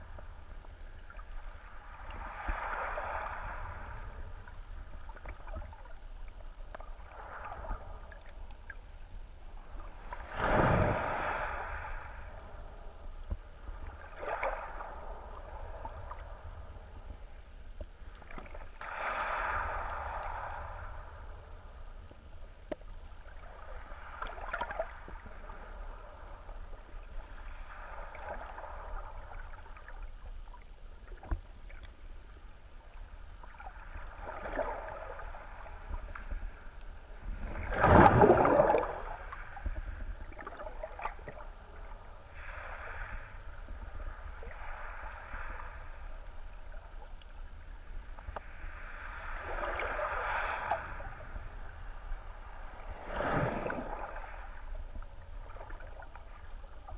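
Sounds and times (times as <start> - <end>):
muffled underwater rumble: 0.0 - 56.9
water swishing: 0.0 - 56.9
water whoosh: 9.8 - 13.0, 37.1 - 45.9, 48.6 - 56.4.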